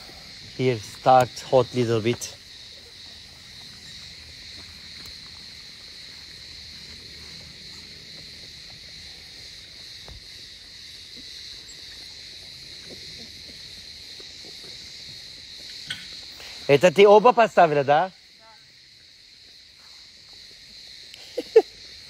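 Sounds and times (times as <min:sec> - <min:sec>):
crickets chirring: 0:00.0 - 0:22.0
faint ticks: 0:04.9 - 0:05.2.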